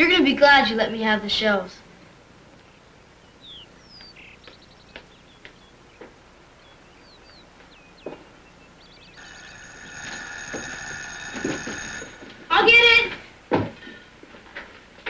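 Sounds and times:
birds chirping: 0.0 - 13.2
footsteps on steps: 4.0 - 6.2.

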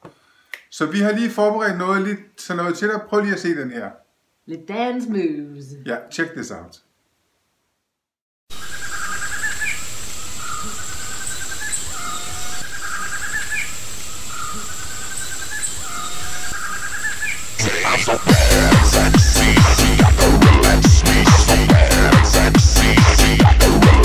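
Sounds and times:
high-pitched insect whine: 8.5 - 18.4
trilling bird calls: 8.5 - 20.0
electronic dance music: 17.6 - 24.0.

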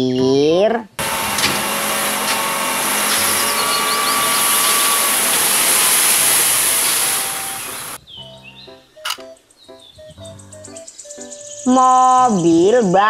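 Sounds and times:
hydraulic hoist raising: 1.0 - 8.0
sand pouring hiss: 1.0 - 8.0
truck engine running hard: 1.0 - 8.0.

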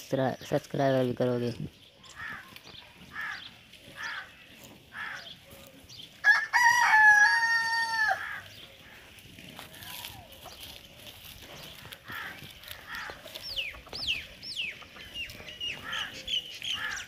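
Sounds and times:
rooster crowing: 6.2 - 8.5
chicken clucking: 10.3 - 17.0.

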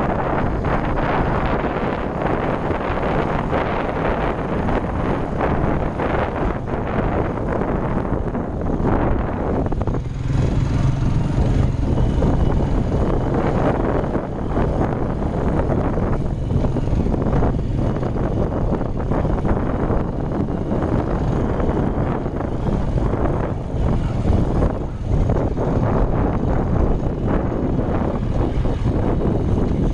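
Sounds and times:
vehicle engine running: 0.0 - 29.9
wind buffeting microphone: 0.0 - 29.9.

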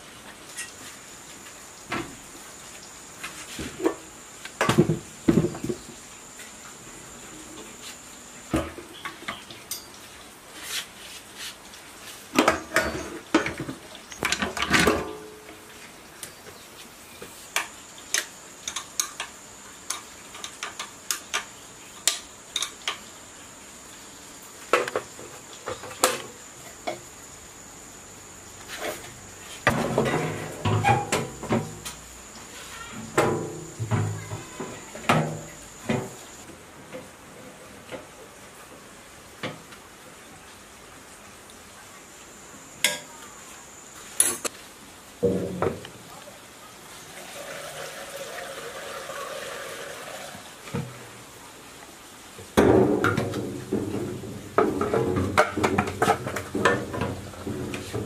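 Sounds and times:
metal clanks and knocks: 29.7 - 32.0, 33.0 - 36.2, 52.6 - 58.0.

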